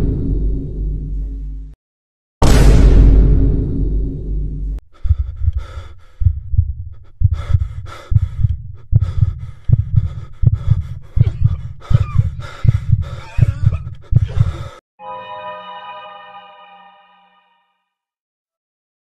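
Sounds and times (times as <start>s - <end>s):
heartbeat thumps: 4.1s - 14.8s
heavy breathing and gasps: 4.9s - 14.8s.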